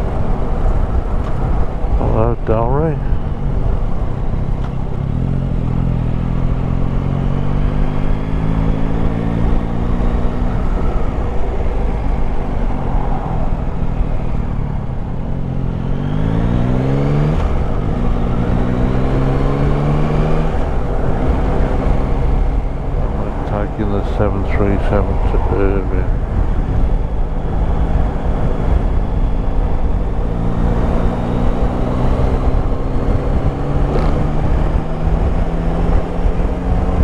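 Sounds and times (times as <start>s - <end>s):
motorcycle engine running: 0.6s - 9.7s.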